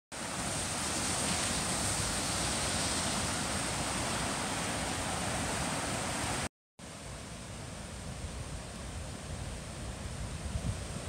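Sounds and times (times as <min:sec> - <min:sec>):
floodwater rushing over rocks: 0:00.1 - 0:06.5.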